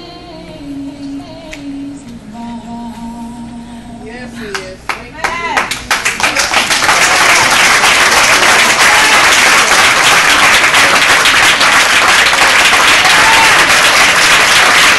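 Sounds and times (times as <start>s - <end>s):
crowd applauding: 5.2s - 14.9s.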